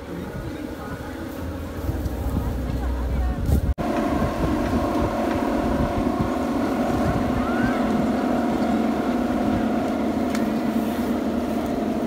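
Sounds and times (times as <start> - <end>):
wind rumbling on microphone: 0.0 - 12.0
windmills droning hum: 0.0 - 12.0.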